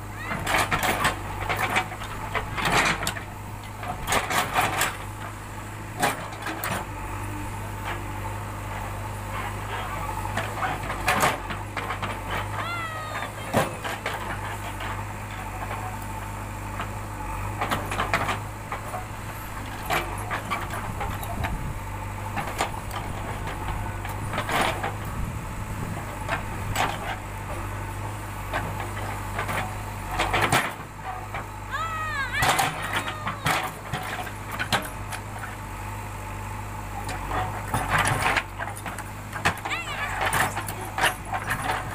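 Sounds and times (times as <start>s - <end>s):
diesel engine running: 0.0s - 41.9s
backhoe bucket clanking: 0.1s - 6.9s, 8.8s - 25.2s, 32.4s - 36.0s, 36.7s - 41.9s.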